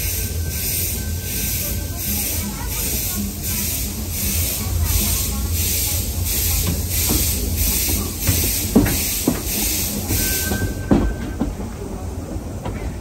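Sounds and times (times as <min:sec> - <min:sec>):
steam puffs hissing: 0:00.0 - 0:11.4
high wheel squeal: 0:10.1 - 0:11.4.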